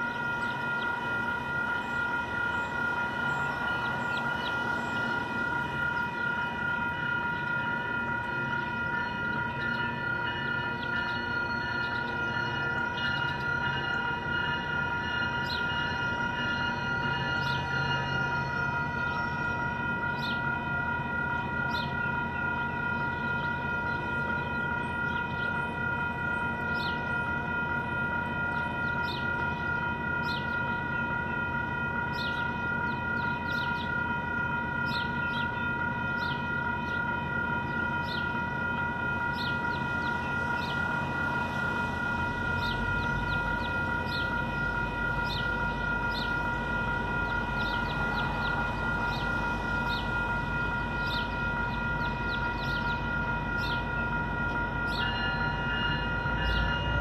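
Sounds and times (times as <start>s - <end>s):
crossing bell ringing: 0.0s - 57.0s
train rumble: 0.0s - 57.0s.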